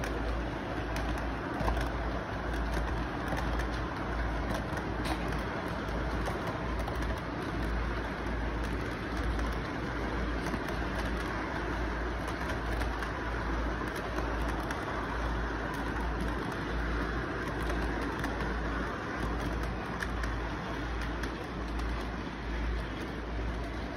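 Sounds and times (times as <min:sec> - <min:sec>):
model train cars rumbling: 0:00.0 - 0:23.9.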